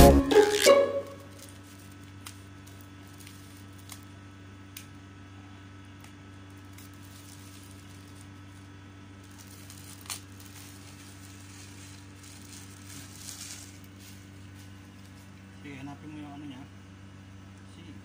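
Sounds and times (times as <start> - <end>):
plastic wrap crinkling: 0.0 - 4.2, 6.0 - 15.4
steady low hum: 1.2 - 18.0.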